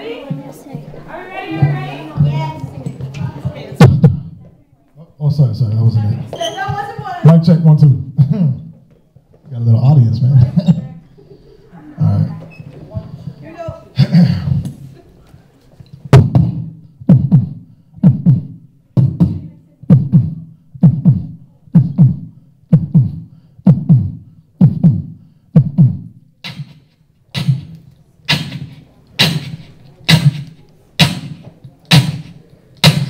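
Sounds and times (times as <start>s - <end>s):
beatboxing into a microphone: 3.8s - 4.4s, 7.8s - 8.8s, 10.3s - 10.9s, 12.0s - 14.8s, 16.1s - 33.0s.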